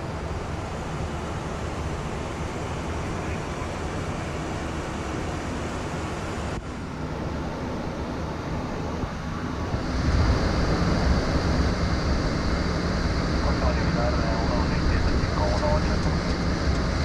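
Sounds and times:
rushing airflow and engine noise: 0.0s - 17.0s.

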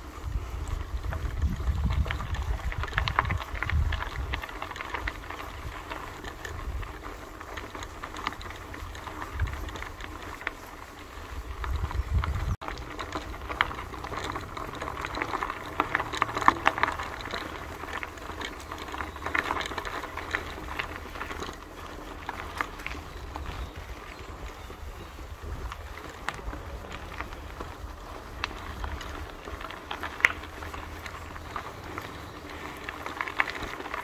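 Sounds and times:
wind rumble in microphone: 0.0s - 7.1s, 11.2s - 15.4s, 22.8s - 32.7s
footsteps on gravel: 0.0s - 34.0s.

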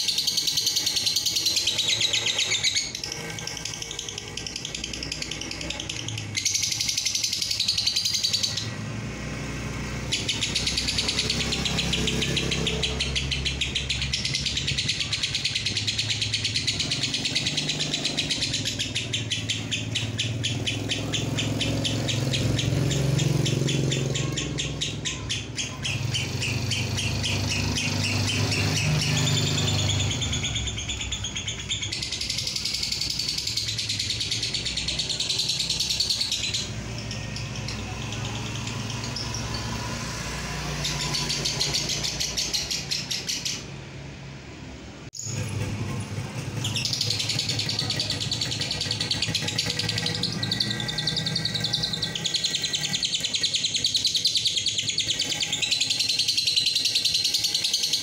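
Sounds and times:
lovebird trilling chatter: 0.0s - 8.8s, 9.8s - 43.7s, 45.2s - 58.0s.

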